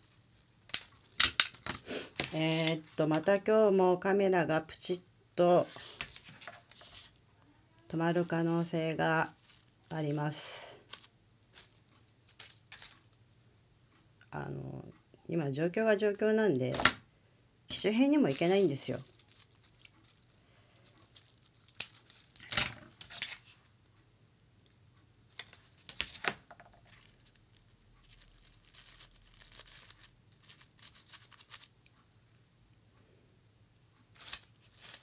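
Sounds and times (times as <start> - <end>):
dried petals rustling: 7.9 - 13.4, 17.7 - 23.8, 25.9 - 31.8, 34.2 - 35.0.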